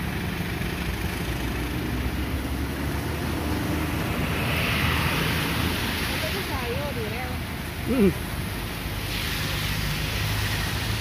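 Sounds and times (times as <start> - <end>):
rain: 0.0 - 11.0
hiss: 8.7 - 11.0.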